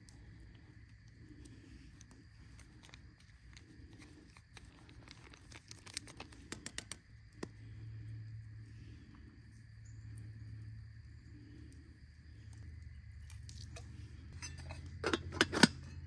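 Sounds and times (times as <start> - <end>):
low steady hum: 0.0 - 16.0
foil packet crinkling: 2.7 - 7.0.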